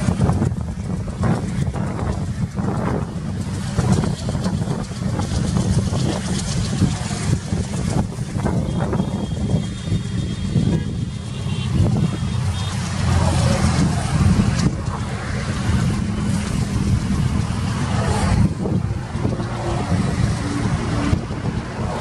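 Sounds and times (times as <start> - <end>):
distant train rumbling past: 0.0 - 10.4.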